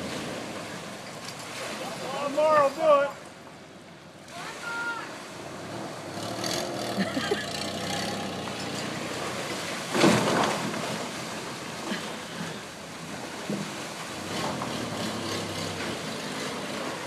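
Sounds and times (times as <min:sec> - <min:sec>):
loud crash of truck into pool wall: 0:09.8 - 0:11.1.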